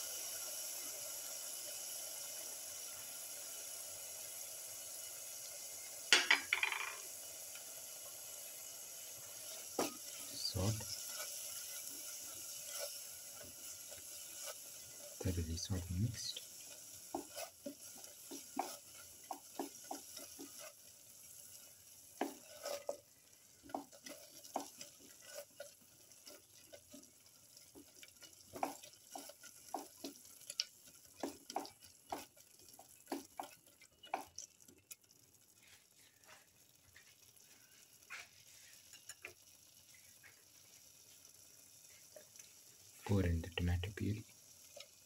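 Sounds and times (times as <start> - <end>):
paste sizzling: 0.0 - 6.2, 6.9 - 45.0.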